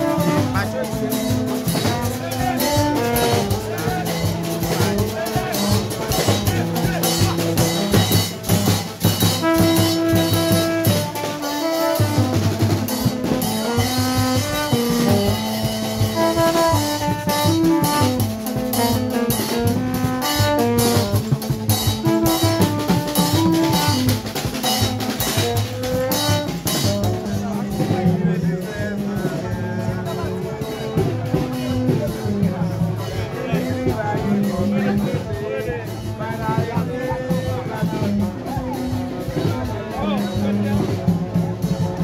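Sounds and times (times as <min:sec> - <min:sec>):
tube horns playing short notes: 0:05.6 - 0:27.1.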